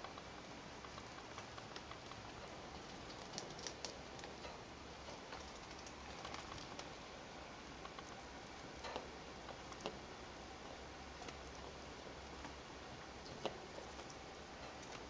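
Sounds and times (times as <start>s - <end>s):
rats clicking and scratching on cage: 0.0s - 7.0s
steady low hiss: 0.0s - 15.0s.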